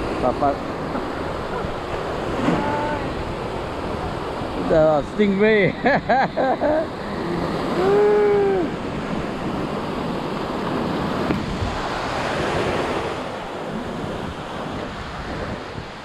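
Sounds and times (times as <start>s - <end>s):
surf breaking on sand: 0.0s - 5.8s
wind on microphone: 6.8s - 16.0s.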